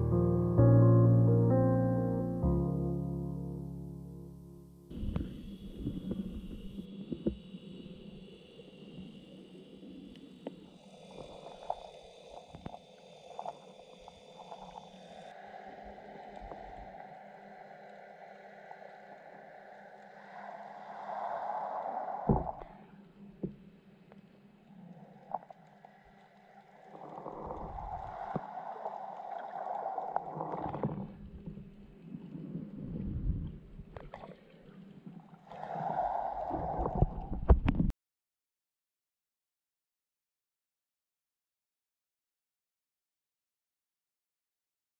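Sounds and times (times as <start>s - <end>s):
muffled underwater water noise: 4.9s - 37.9s.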